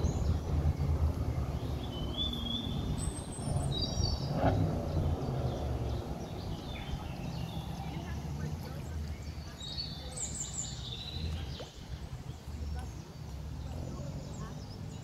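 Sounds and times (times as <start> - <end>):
bird chirps: 0.0 - 8.2
continuous low rumble: 0.0 - 15.0.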